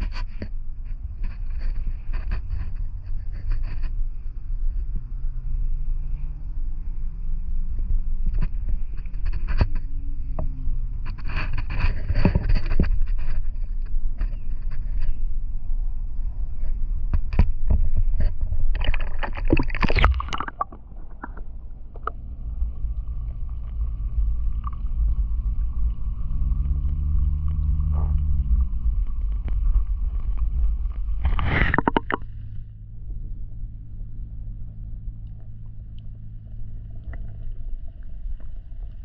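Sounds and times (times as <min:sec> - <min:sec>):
wind rumbling on microphone: 0:00.0 - 0:39.0
water splashing: 0:18.6 - 0:32.6.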